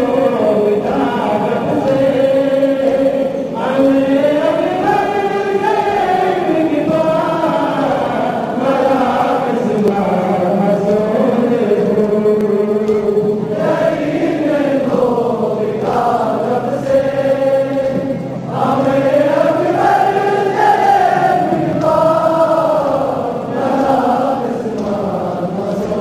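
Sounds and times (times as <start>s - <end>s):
men chanting a lament: 0.0s - 26.0s.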